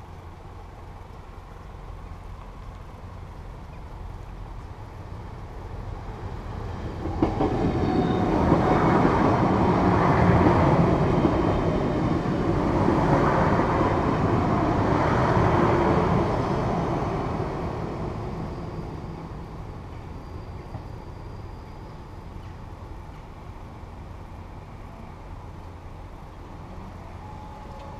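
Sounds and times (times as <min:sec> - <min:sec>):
diesel train passing: 0:00.0 - 0:27.9.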